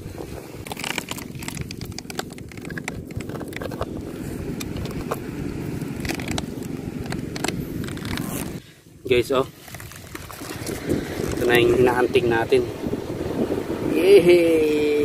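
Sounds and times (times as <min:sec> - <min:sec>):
clicks and scrapes on rock: 0:00.6 - 0:03.9.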